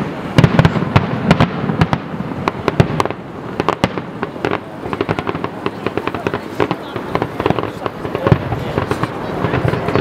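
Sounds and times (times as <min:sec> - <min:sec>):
fireworks bursting: 0:00.0 - 0:10.0.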